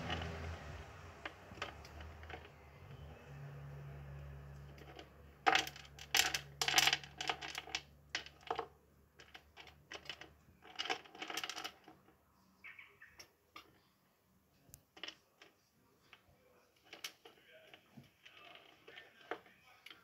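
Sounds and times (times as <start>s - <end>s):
small hard clicks and rattles: 0.0s - 3.1s, 3.9s - 12.3s, 14.7s - 20.0s
faint low hum: 0.0s - 9.2s
hamster crunching dry food: 4.0s - 12.0s, 16.8s - 20.0s.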